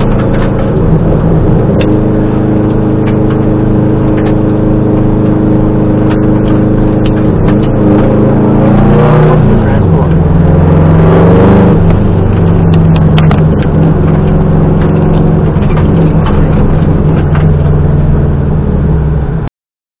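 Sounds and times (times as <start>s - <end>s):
clicks and knocks: 0.0s - 2.0s, 11.8s - 17.8s
rally car engine running: 0.0s - 19.5s.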